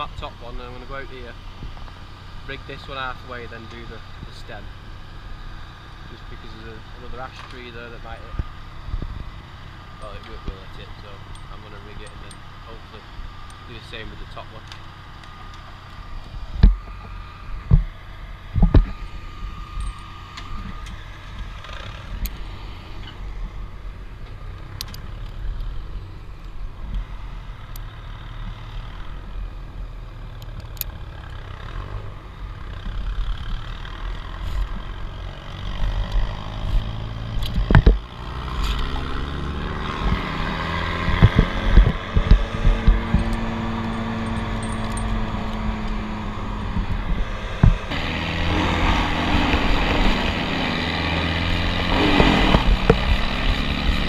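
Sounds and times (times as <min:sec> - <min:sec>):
vehicle engines rumbling: 0:00.0 - 0:54.0
climbing rope and gear clicking: 0:10.0 - 0:17.9, 0:18.6 - 0:23.2, 0:35.7 - 0:54.0.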